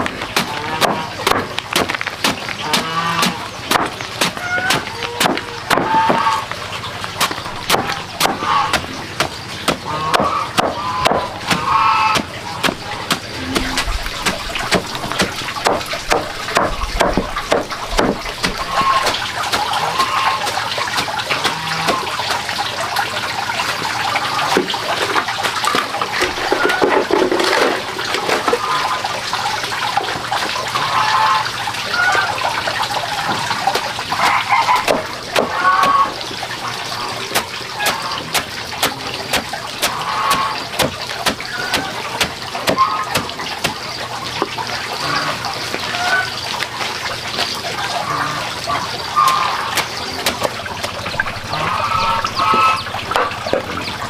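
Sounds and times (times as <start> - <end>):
cleaver chopping bamboo: 0.3 - 6.2, 7.2 - 19.8, 33.8 - 36.0, 37.3 - 43.8.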